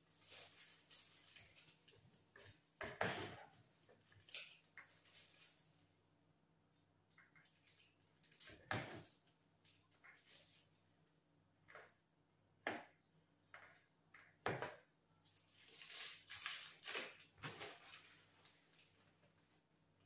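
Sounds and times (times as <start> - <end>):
plastic bags rustling: 0.0 - 5.9, 15.4 - 19.7.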